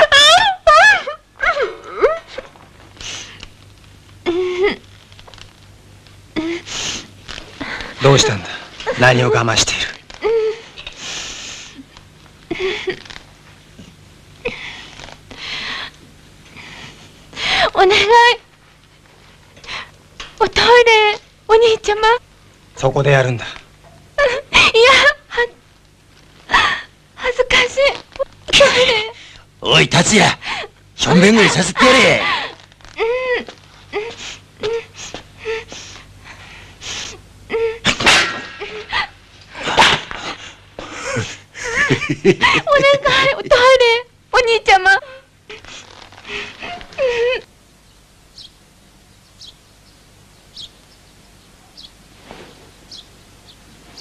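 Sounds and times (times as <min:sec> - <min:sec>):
sharp intake of breath: 0:11.0 - 0:11.8
woman whimpering: 0:46.4 - 0:47.5.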